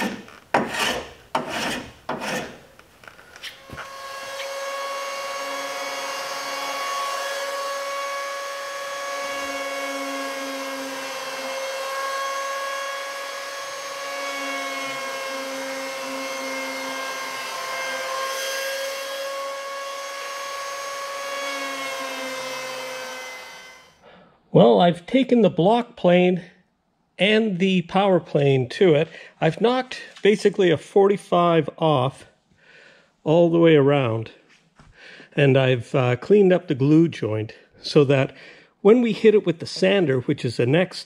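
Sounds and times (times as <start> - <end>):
power planer motor whine: 3.6 - 24.0.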